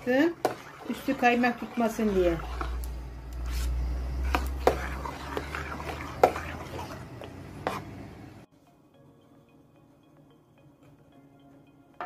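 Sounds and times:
spoon scraping thick pudding: 0.0 - 8.2.

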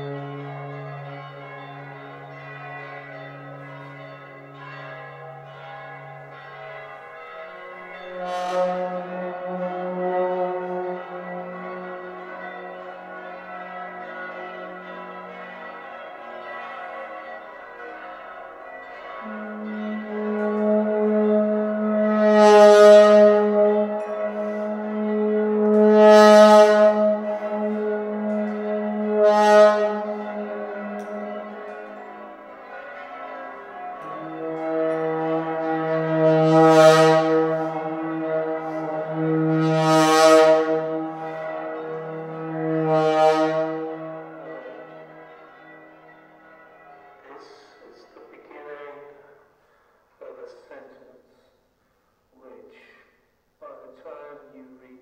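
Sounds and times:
trombone playing low note: 8.1 - 12.1, 19.2 - 32.0, 34.0 - 44.6.

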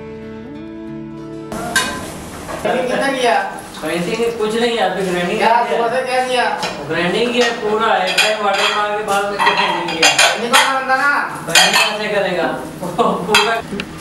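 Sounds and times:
dishes and pans clattering: 1.6 - 2.7, 6.6 - 10.9, 11.5 - 12.1, 13.3 - 13.6.

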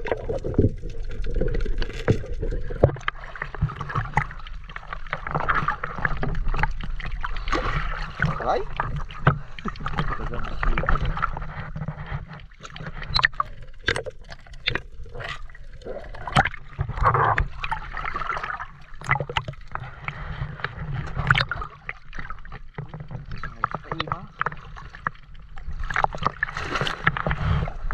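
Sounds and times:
seawater sloshing and splashing: 0.0 - 27.9
water gurgling and bubbling: 0.0 - 27.9.

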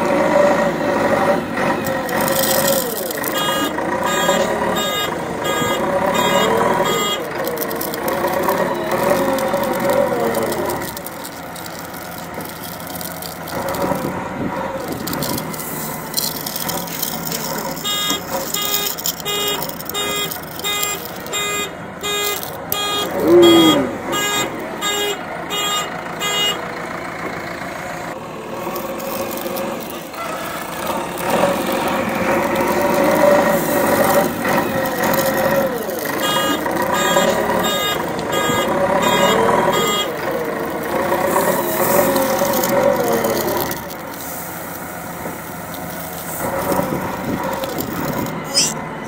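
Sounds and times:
backhoe engine running: 0.0 - 49.0
reversing alarm beeping: 2.1 - 13.8, 14.8 - 26.6, 30.3 - 43.9.

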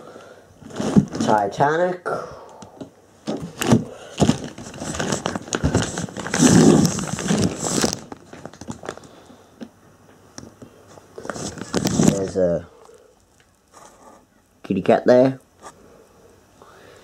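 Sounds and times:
camera handling rustle: 11.2 - 12.3.

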